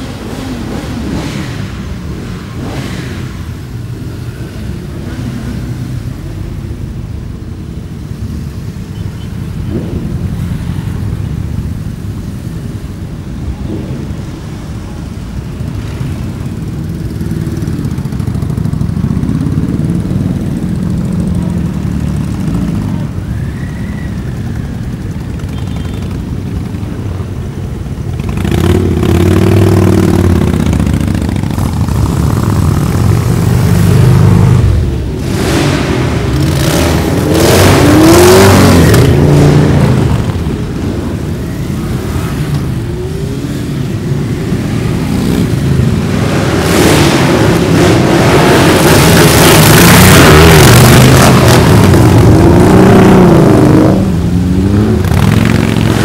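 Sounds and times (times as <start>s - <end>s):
motorcycles riding past: 13.5s - 56.0s.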